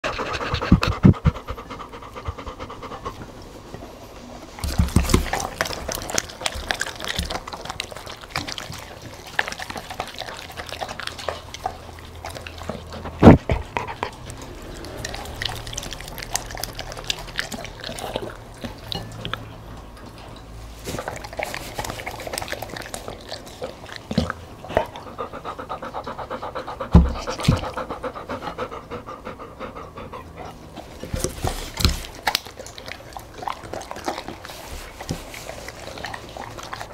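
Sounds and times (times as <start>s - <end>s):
dog panting: 0.0s - 20.2s, 21.0s - 36.9s
dog licking and chewing: 0.0s - 36.9s.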